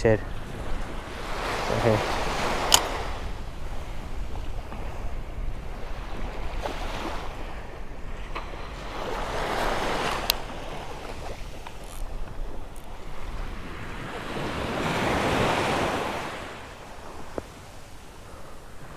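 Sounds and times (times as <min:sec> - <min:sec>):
small waves breaking on shore: 0:00.0 - 0:18.9
wind buffeting microphone: 0:00.0 - 0:18.9.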